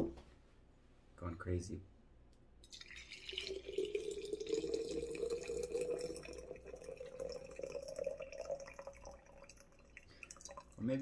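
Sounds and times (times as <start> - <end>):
liquid pouring into vessel: 2.6 - 11.0.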